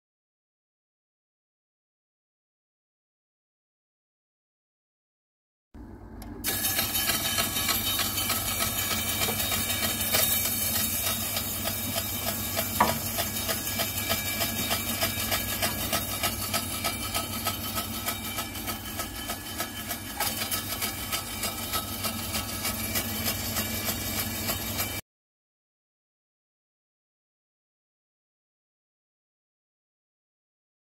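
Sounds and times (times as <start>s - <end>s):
meat slicer motor pulsing: 6.4s - 25.0s.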